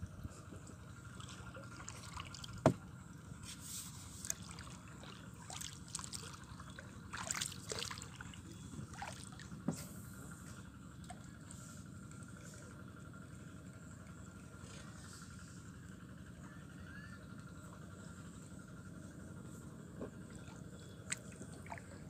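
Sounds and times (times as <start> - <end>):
water trickling and lapping: 0.2 - 16.2, 17.5 - 22.0
sharp knock on wooden boat: 2.6 - 2.8.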